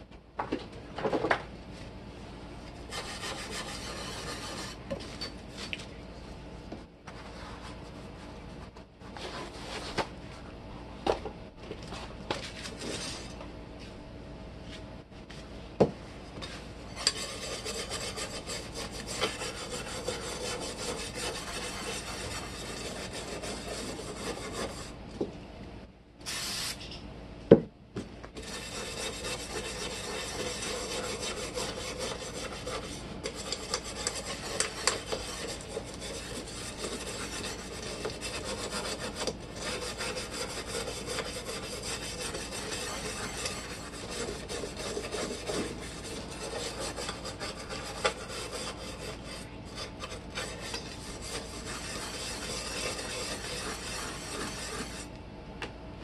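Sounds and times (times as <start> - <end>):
brush scrubbing metal plate: 2.9 - 4.8, 17.0 - 24.9, 28.4 - 55.1.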